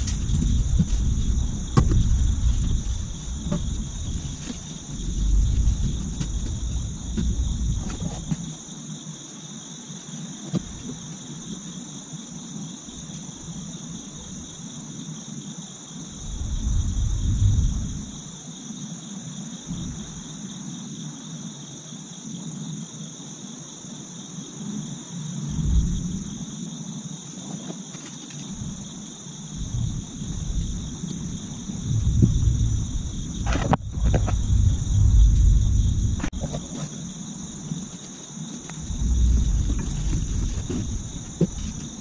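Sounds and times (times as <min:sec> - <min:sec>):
low rumbles: 0:00.0 - 0:08.3, 0:16.2 - 0:18.2, 0:25.5 - 0:26.4, 0:28.5 - 0:28.9, 0:29.5 - 0:36.5, 0:38.7 - 0:41.9
insect chorus trilling: 0:00.0 - 0:42.0.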